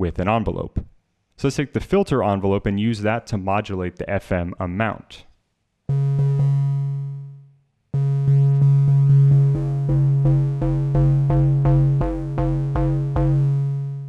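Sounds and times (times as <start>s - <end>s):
synthesizer bass notes: 5.9s - 14.0s.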